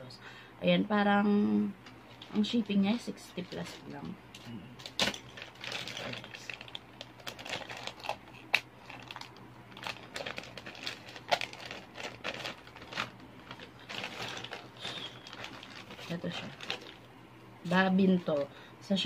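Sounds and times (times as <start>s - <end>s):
plastic pouch crinkling: 4.8s - 17.1s.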